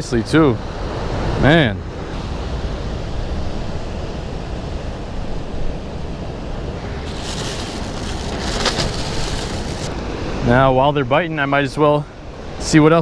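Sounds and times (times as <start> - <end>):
ocean surf washing over rocks: 6.8 - 10.6
plastic bag crinkling: 7.1 - 10.0.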